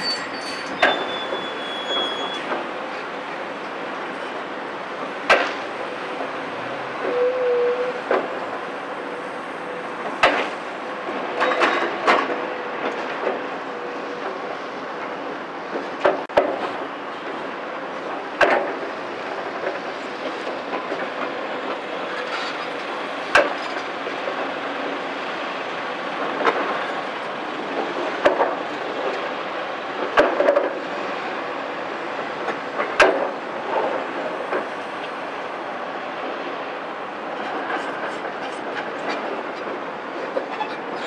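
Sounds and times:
excavator diesel engine and hydraulics: 0:00.0 - 0:41.0.

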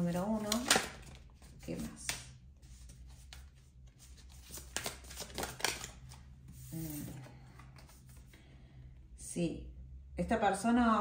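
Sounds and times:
cards brushing and slapping: 0:00.3 - 0:07.2.

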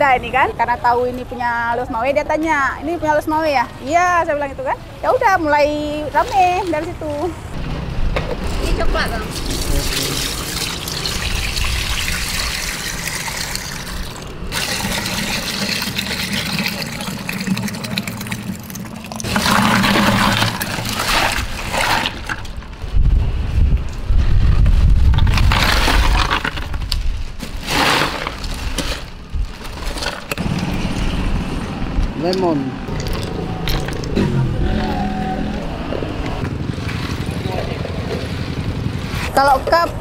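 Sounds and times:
thick liquid pouring and splashing: 0:09.3 - 0:22.3
bag of ice thumping and rustling: 0:19.3 - 0:22.8, 0:24.9 - 0:30.5.

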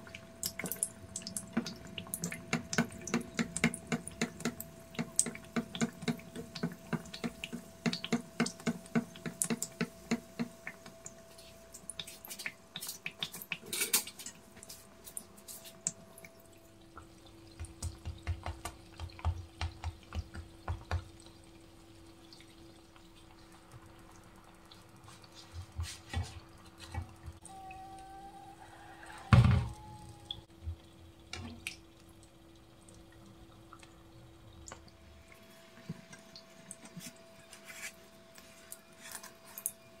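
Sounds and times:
oil sizzling and crackling: 0:00.0 - 0:27.6.

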